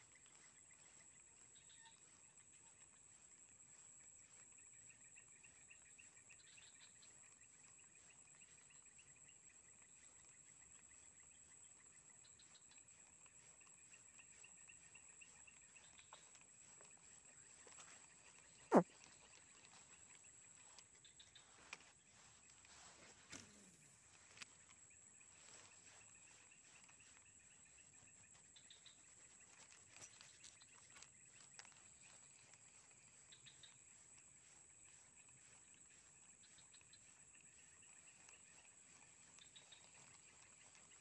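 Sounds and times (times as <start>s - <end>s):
insects buzzing and trilling: 0.0s - 41.0s
small chirps: 0.0s - 41.0s.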